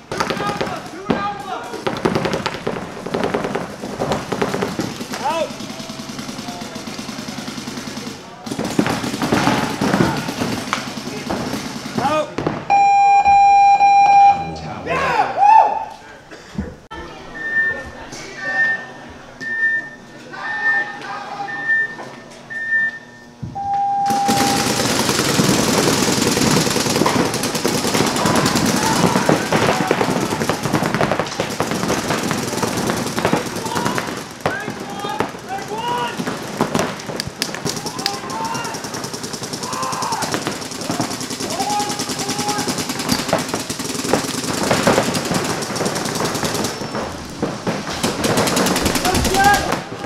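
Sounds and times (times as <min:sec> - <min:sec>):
rapid paintball marker shots: 0:00.0 - 0:12.3, 0:24.1 - 0:50.0
short high countdown beep: 0:12.7 - 0:14.8, 0:19.5 - 0:24.7.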